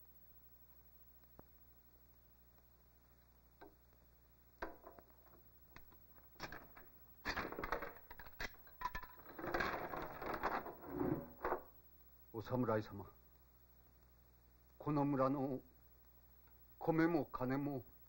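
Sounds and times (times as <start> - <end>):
wooden knocking and clatter: 4.6 - 11.8
scraping in wooden tub: 9.2 - 11.8.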